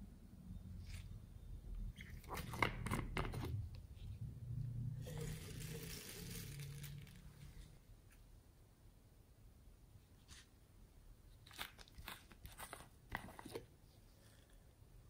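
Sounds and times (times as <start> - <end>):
foam beads pouring onto slime: 5.0 - 7.6.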